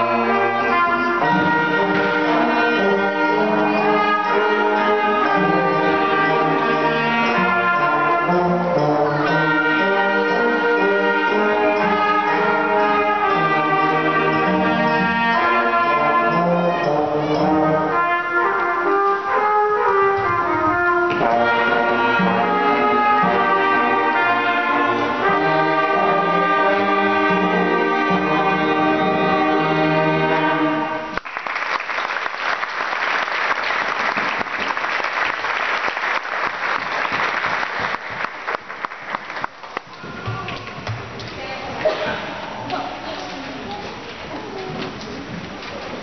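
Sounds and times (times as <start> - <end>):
concert band playing chords: 0.0 - 18.8
audience applause: 31.2 - 40.9.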